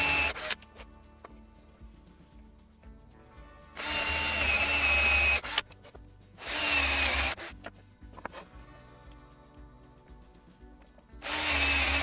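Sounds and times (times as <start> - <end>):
electric drill boring into wood: 0.0 - 0.6, 3.8 - 5.7, 6.4 - 7.5, 11.2 - 12.0.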